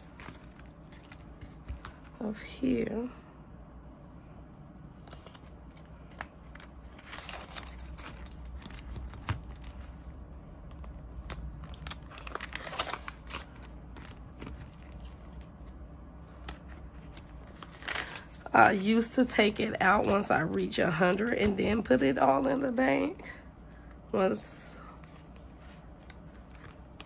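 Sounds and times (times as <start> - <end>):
paper bills rustling: 5.0 - 10.1, 10.7 - 21.6
plastic crinkling: 5.0 - 22.0.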